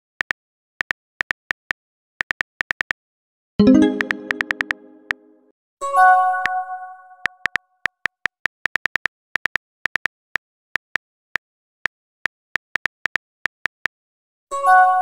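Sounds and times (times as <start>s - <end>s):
message alert chime: 3.6s - 5.4s.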